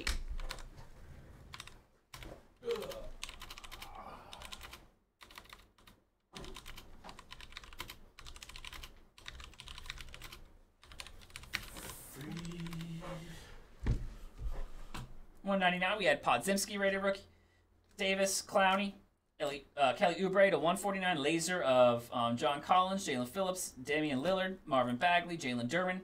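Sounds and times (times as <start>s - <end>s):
typing on keyboard: 0.0s - 0.7s, 1.5s - 12.9s.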